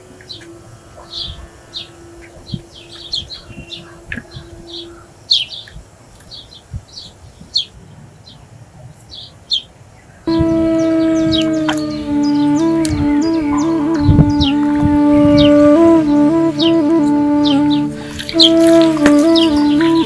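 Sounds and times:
birds chirping: 0.0 - 20.0
background music: 10.3 - 20.0
held musical note: 10.3 - 20.0.

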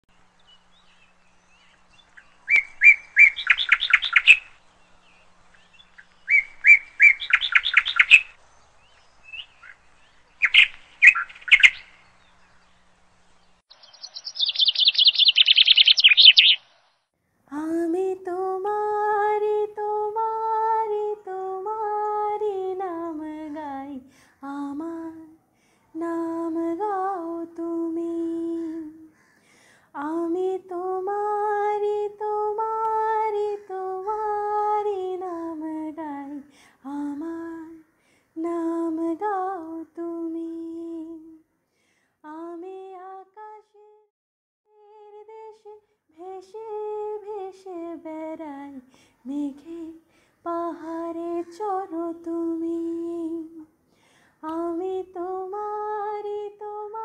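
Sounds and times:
songbird chirping and trilling: 0.1 - 17.1.

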